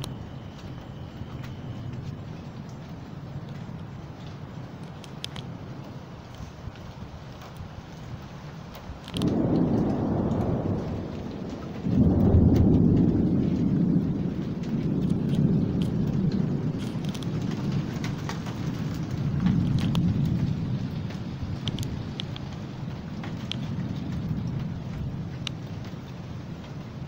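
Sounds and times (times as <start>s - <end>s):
rain: 0.0s - 27.0s
thunder rumbling: 0.0s - 27.0s.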